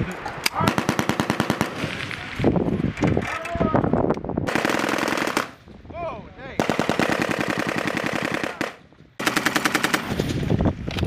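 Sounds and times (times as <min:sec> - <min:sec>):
machine gun firing bursts: 0:00.6 - 0:01.8, 0:04.5 - 0:05.6, 0:06.6 - 0:10.4.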